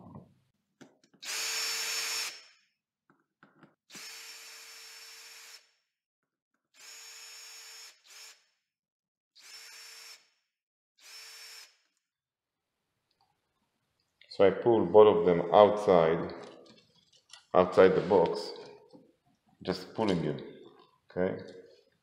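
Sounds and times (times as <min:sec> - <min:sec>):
cordless drill running: 0:01.2 - 0:02.4, 0:03.9 - 0:05.6, 0:06.8 - 0:08.4, 0:09.4 - 0:10.3, 0:11.0 - 0:11.8.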